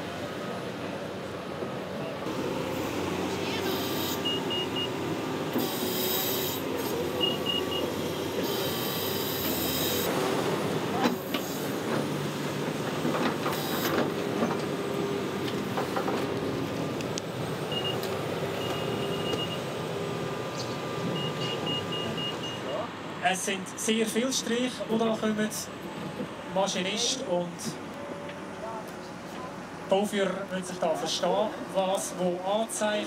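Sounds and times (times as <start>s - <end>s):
excavator engine and hydraulics: 0.0s - 33.0s.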